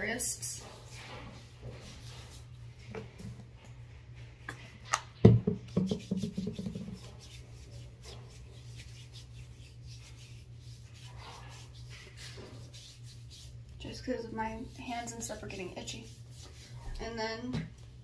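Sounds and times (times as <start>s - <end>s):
steady low hum: 0.0s - 18.0s
hands rubbing lotion into skin: 5.5s - 16.7s.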